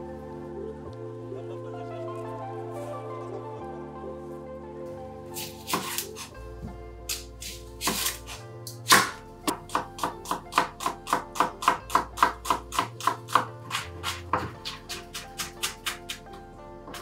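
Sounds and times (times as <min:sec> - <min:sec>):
background music: 0:00.0 - 0:17.0
knife chopping onion on board: 0:05.4 - 0:06.3, 0:07.1 - 0:08.3, 0:08.9 - 0:16.2.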